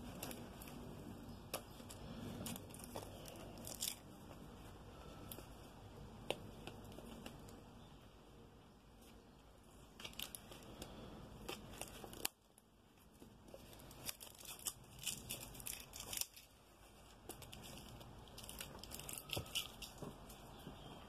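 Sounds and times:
packaging tearing and crinkling: 0.0 - 4.3, 10.0 - 12.6, 13.4 - 20.4.

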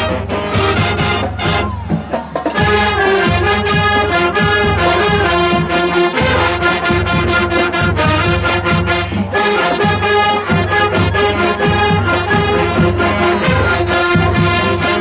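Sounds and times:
marching band playing: 0.0 - 15.0.

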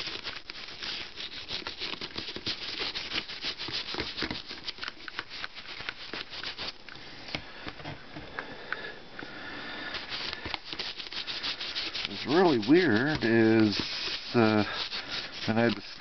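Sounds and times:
toothbrush scrubbing: 0.0 - 6.8, 10.0 - 16.0.

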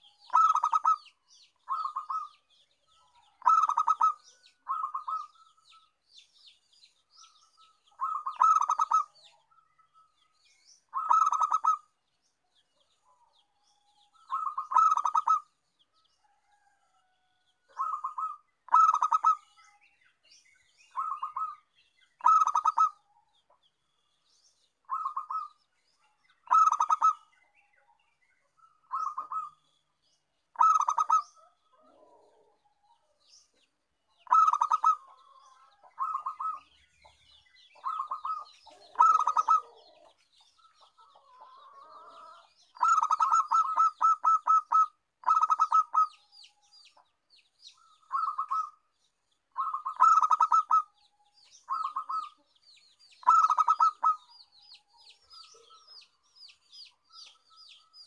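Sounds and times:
dove cooing: 0.3 - 1.1, 1.7 - 2.3, 3.2 - 5.4, 8.0 - 9.2, 10.9 - 11.9, 14.3 - 15.5, 17.7 - 19.6, 20.9 - 21.6, 22.2 - 23.0, 24.9 - 25.6, 26.5 - 27.3, 28.9 - 29.6, 30.6 - 32.6, 34.2 - 36.7, 37.8 - 46.2, 47.8 - 48.8, 49.6 - 50.9, 51.7 - 52.4, 53.2 - 54.3.

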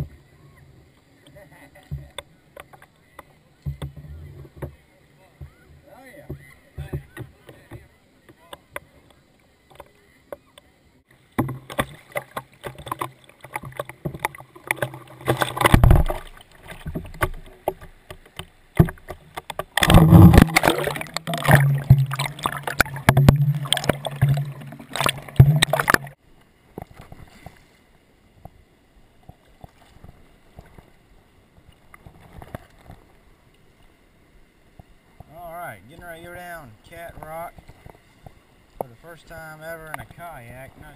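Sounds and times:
water splashing: 0.0 - 34.0
paddle noise: 0.0 - 40.9
water lapping: 0.0 - 40.9
camera knocking and rumbling: 11.4 - 26.2.

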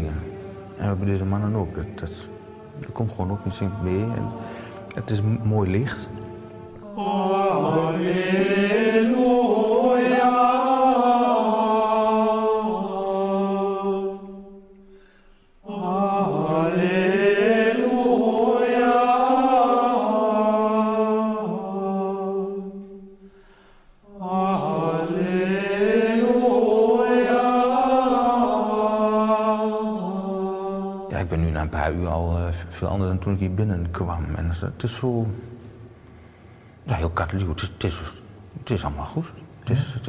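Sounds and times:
men chanting in unison: 0.0 - 14.1.

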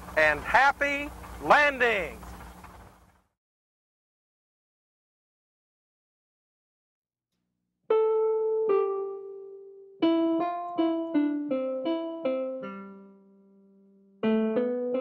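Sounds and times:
solo piano melody: 7.9 - 15.0.

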